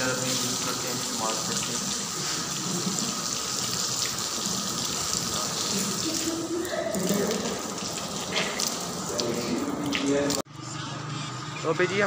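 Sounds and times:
tap water running and splashing: 0:00.0 - 0:10.4.

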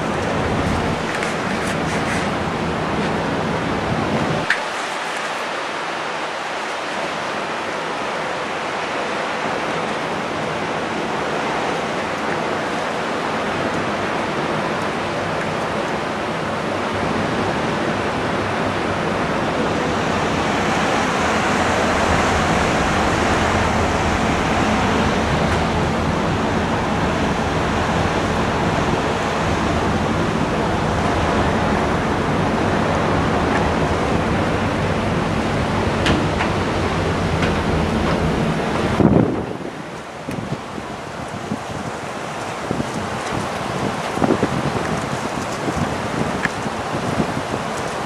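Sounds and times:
low rumble: 0:00.0 - 0:01.6, 0:19.2 - 0:39.9
rushing wind and water: 0:00.0 - 0:48.0.

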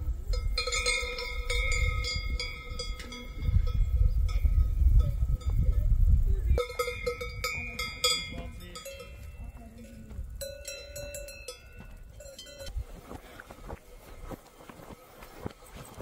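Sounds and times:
cowbells clanking: 0:00.1 - 0:12.8.

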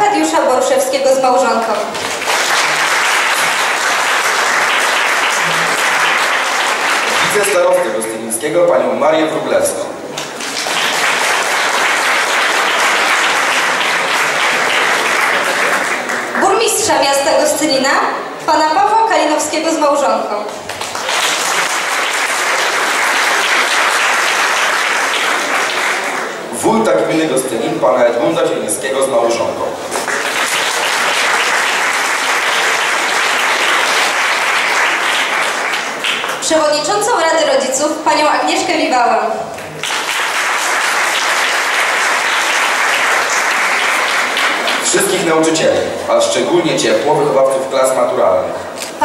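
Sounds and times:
audience applauding: 0:01.8 - 0:08.0, 0:10.1 - 0:17.0, 0:20.5 - 0:27.0, 0:29.9 - 0:36.5, 0:39.5 - 0:45.7.

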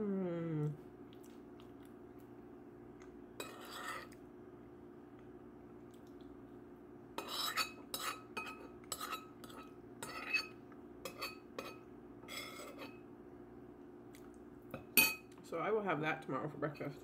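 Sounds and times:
steady low hum: 0:00.0 - 0:17.0
metal spoon scraping a dish: 0:03.4 - 0:04.2, 0:07.2 - 0:13.0.

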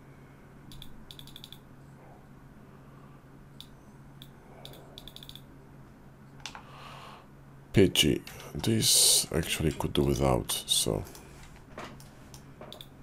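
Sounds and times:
low steady hum: 0:00.0 - 0:13.0
mouse and keyboard clicks: 0:00.7 - 0:01.6, 0:03.6 - 0:05.5.

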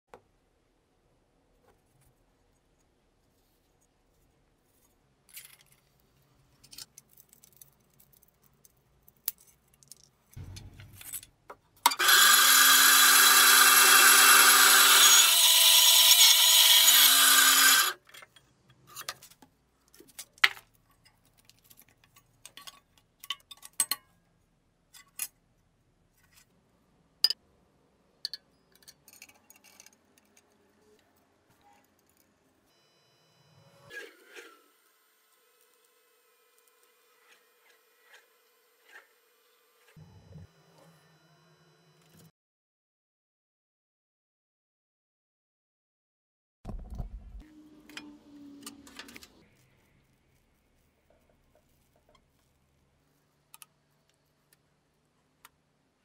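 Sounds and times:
band saw cutting wood: 0:11.9 - 0:18.0, 0:33.8 - 0:40.0.

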